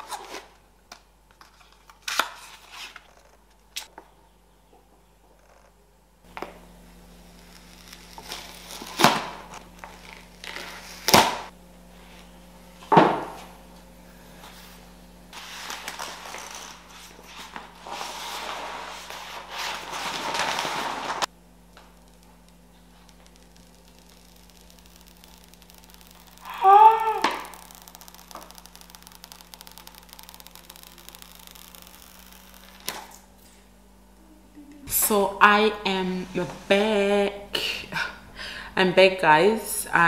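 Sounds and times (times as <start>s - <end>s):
low steady hum: 0.0s - 40.0s
paper rustling and crinkling: 15.4s - 21.3s.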